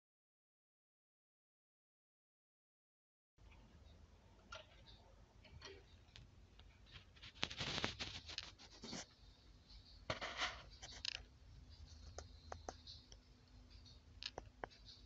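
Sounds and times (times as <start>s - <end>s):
low steady hum: 3.4s - 15.0s
scratchy rubbing noises: 6.8s - 9.2s, 10.1s - 11.2s
small clicks: 14.2s - 15.0s.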